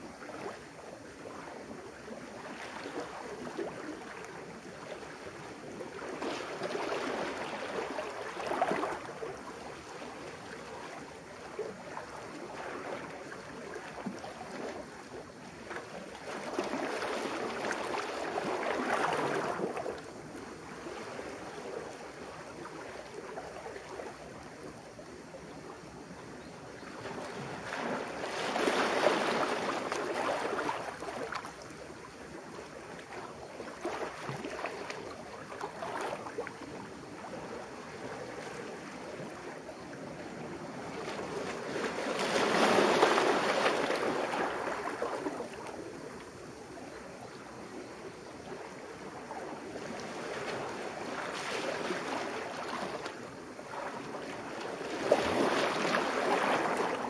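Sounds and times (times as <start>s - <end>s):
sea waves washing over boulders: 27.0s - 39.4s, 40.0s - 46.6s, 48.7s - 57.0s.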